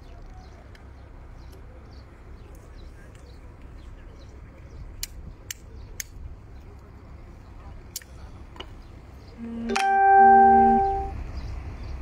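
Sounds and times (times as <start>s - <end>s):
low harbour rumble: 0.0s - 12.0s
faint high chirps: 9.4s - 11.2s.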